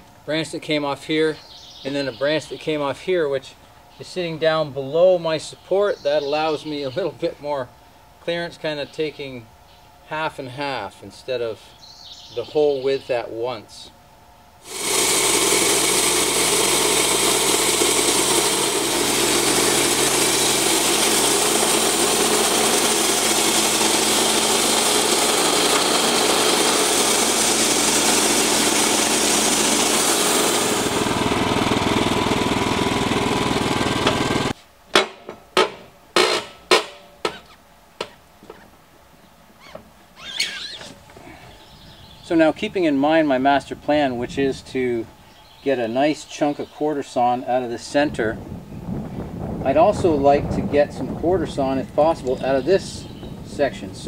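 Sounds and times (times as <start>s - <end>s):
band sawmill cutting log: 14.6s - 37.4s
sharp knocks: 34.9s - 38.6s.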